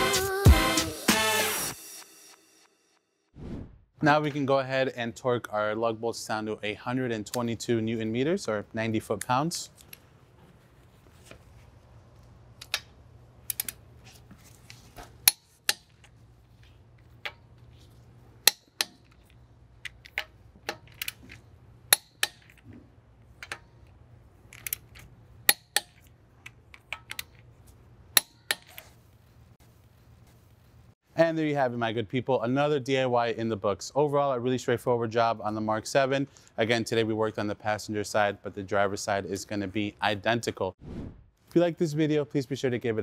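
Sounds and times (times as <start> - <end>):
wrench and socket taps: 24.5 - 27.4.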